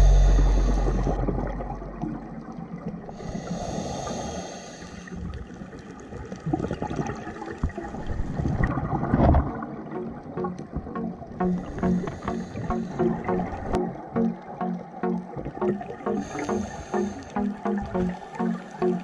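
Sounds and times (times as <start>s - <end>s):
underwater gurgling water noise: 0.0s - 19.0s
rush of bubbles: 6.2s - 9.8s
background music: 9.9s - 19.0s.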